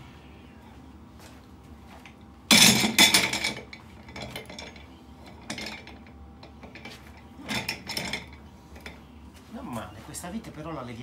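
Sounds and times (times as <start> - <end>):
metal chair base clattering: 2.5 - 6.0, 6.6 - 9.0.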